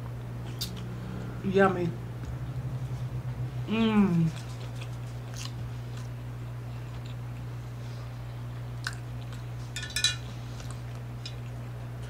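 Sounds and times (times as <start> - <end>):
low electrical hum: 0.0 - 12.0
person chewing food: 0.1 - 0.9, 4.0 - 12.0.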